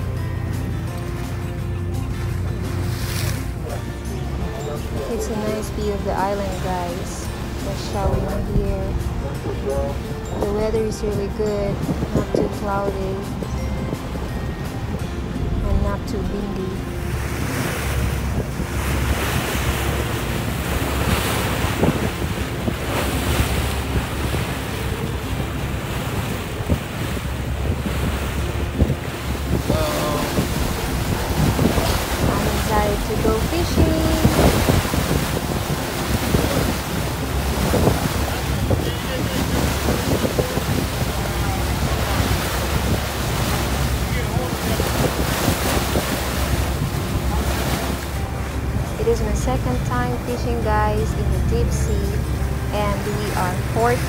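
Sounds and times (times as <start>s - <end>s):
low rumble: 0.0s - 54.0s
sea water washing against hull: 0.0s - 54.0s
wind buffeting microphone: 0.0s - 54.0s.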